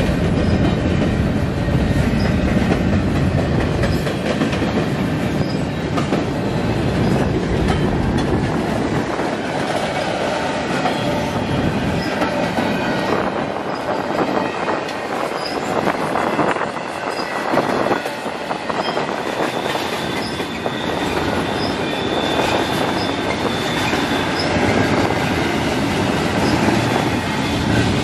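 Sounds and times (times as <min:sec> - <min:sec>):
train rumble: 0:00.0 - 0:28.0
train wheels clacking: 0:00.0 - 0:28.0
faint wheel squeals: 0:19.5 - 0:24.6.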